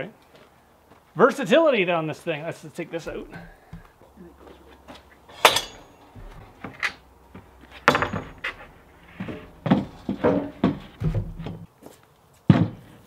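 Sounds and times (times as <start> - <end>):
wood knocking on steel bed: 7.8 - 11.6
dull thumps: 7.9 - 11.7.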